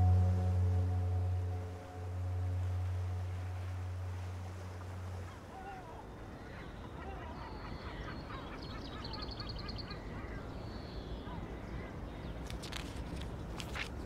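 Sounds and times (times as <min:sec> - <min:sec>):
low musical drone: 0:00.0 - 0:06.4
outdoor background noise: 0:00.0 - 0:14.0.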